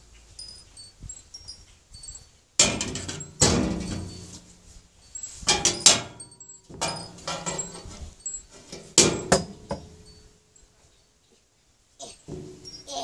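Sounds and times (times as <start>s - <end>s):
high metallic ring: 0.4s - 10.6s
sharp knocks and clatters: 2.6s - 4.4s, 5.4s - 10.2s, 12.2s - 12.9s.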